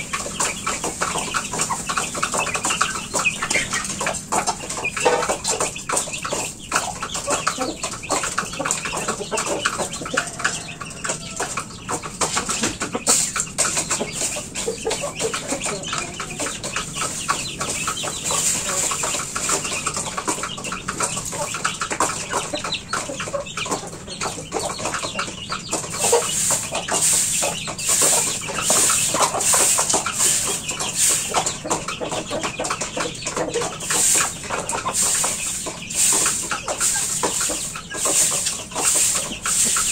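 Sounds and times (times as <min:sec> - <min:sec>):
chickens clucking: 0:00.0 - 0:39.9
chicks peeping: 0:00.0 - 0:39.9
broom sweeping dirt floor: 0:17.7 - 0:19.4, 0:25.9 - 0:31.6, 0:33.6 - 0:39.9.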